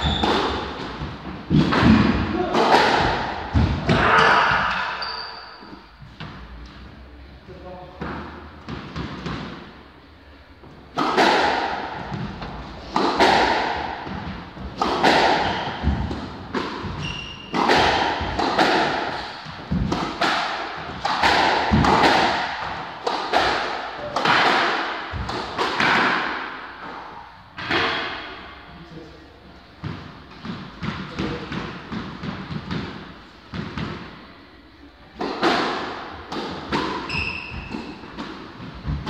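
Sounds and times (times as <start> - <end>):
squash ball hit by rackets: 0.0 - 5.0, 10.9 - 27.0, 27.6 - 28.3, 29.8 - 34.2, 35.2 - 39.0
ball smacking court walls: 0.0 - 5.1, 10.9 - 27.0, 35.2 - 39.0.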